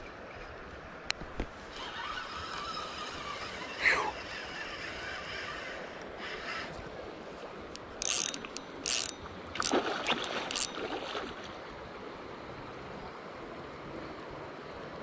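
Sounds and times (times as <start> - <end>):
fishing reel drag buzzing: 1.7 - 6.8, 7.8 - 10.8.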